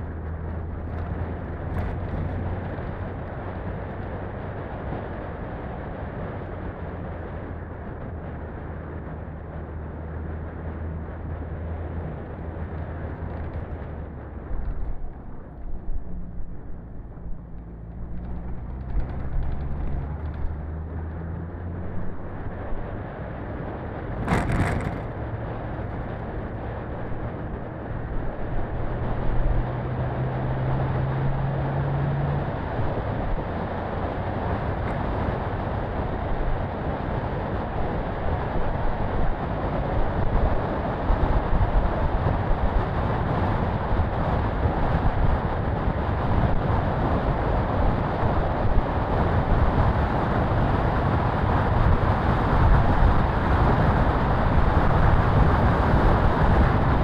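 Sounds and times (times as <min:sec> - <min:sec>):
wind rush: 0:10.5 - 0:57.0
car engine running: 0:10.7 - 0:29.6.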